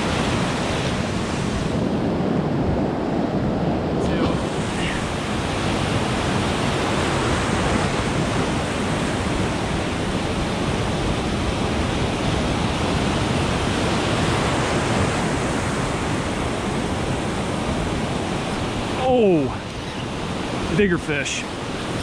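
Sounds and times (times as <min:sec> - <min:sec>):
ocean surf washing over rocks: 0:00.0 - 0:22.0.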